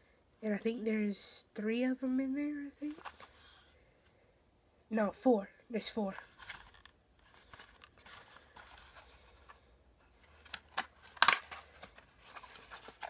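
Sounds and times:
packaging rustling: 2.8s - 3.6s, 6.2s - 13.0s
packaging crackling and snapping: 10.2s - 13.0s.

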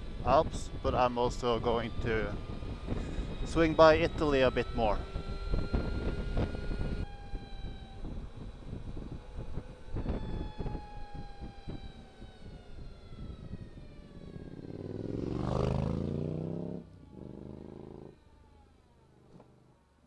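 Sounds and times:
wind buffeting microphone: 0.0s - 16.6s
electric motorbike whine: 0.0s - 20.0s
vehicle rushing past: 14.3s - 18.2s.

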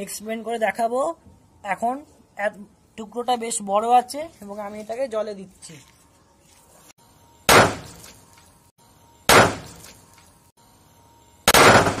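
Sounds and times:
sharp explosive bangs: 7.5s - 8.0s, 9.3s - 9.8s, 11.4s - 12.0s.

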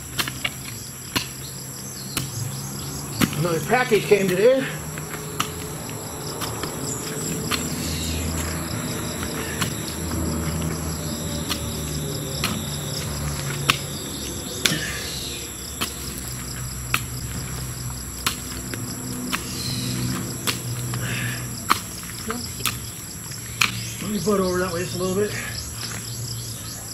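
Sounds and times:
hoe chopping into soil: 0.0s - 2.5s, 3.1s - 22.9s, 23.5s - 24.1s
crickets trilling: 0.0s - 26.9s.

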